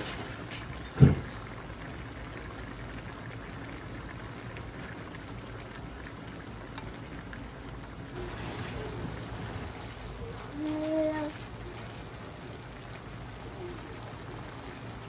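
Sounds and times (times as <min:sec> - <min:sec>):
sauce bubbling in a pan: 0:00.0 - 0:15.0
wooden spoon stirring: 0:08.2 - 0:13.0.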